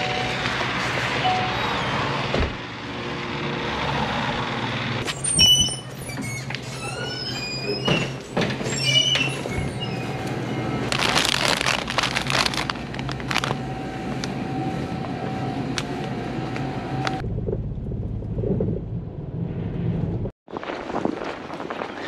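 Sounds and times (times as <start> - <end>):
plastic snack bag crinkling: 10.9 - 13.6.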